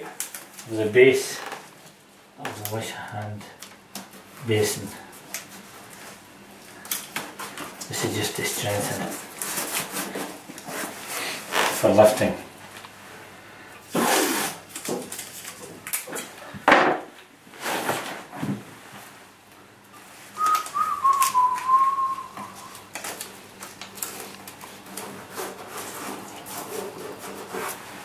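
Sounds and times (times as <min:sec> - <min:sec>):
masking tape tearing: 0:13.9 - 0:16.0
tape handling noises: 0:13.9 - 0:16.4, 0:20.2 - 0:27.9
short wavering whistle: 0:20.4 - 0:22.8.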